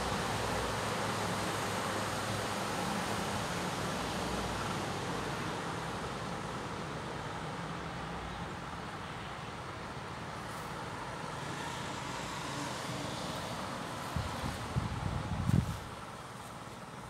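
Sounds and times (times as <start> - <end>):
motor vehicle noise: 10.2 - 17.0.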